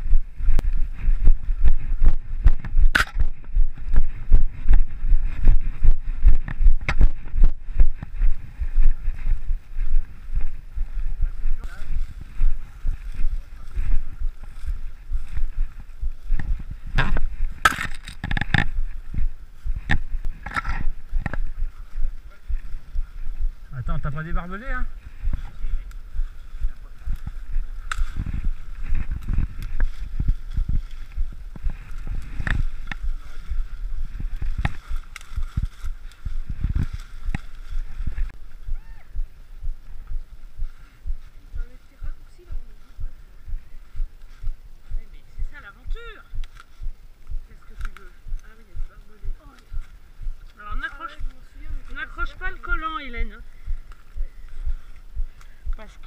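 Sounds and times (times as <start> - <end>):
footsteps through dry vegetation: 0.0 - 56.0
wind rumble on microphone: 0.0 - 56.0
twigs snapping: 2.6 - 3.4, 16.3 - 18.8, 25.8 - 33.5, 34.3 - 37.8, 46.3 - 48.6
branches swishing and scraping: 24.9 - 38.6.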